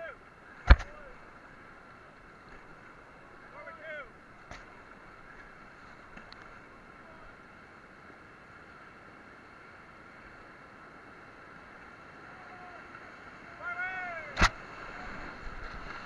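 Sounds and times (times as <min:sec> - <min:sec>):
river rapids rushing: 0:00.0 - 0:16.0.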